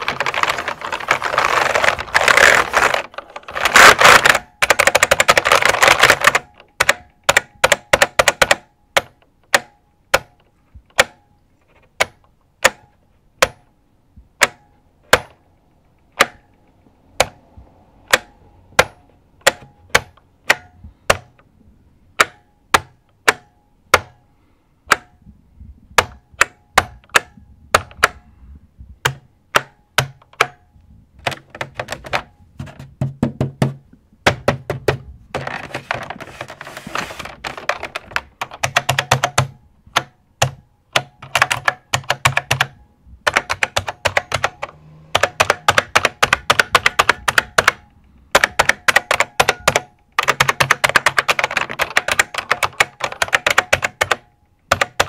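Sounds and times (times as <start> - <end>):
mechanical keyboard clicking: 0.0 - 11.2, 11.9 - 13.6, 17.2 - 17.4, 18.0 - 21.4, 26.0 - 28.2, 29.0 - 30.6, 31.2 - 32.8, 34.2 - 55.0.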